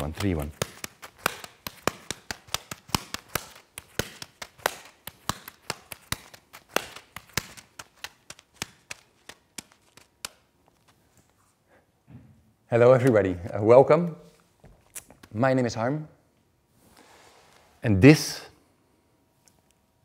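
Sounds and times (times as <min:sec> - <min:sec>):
juggling balls slapping hands: 0:00.0 - 0:11.0.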